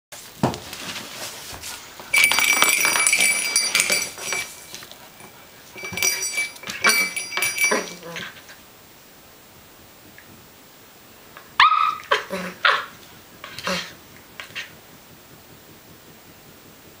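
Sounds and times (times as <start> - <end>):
metallic jingling: 2.0 - 8.6
ornament clinking on tile floor: 2.0 - 8.6.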